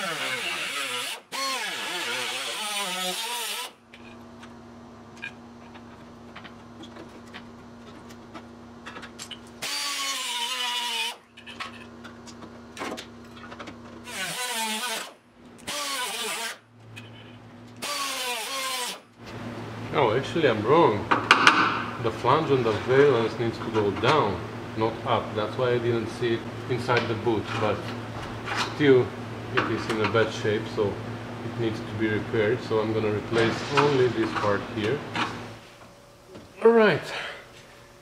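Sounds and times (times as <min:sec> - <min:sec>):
cut-off wheel cutting steel: 0:00.0 - 0:03.8, 0:09.6 - 0:11.2, 0:14.1 - 0:16.6, 0:17.8 - 0:19.0.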